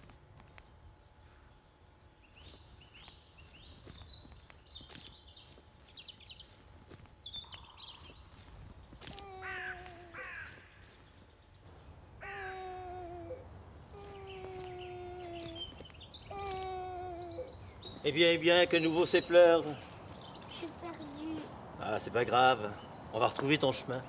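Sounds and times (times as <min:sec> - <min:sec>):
birds chirping: 0:00.7 - 0:24.0
young child crying: 0:09.0 - 0:10.6, 0:12.2 - 0:17.6.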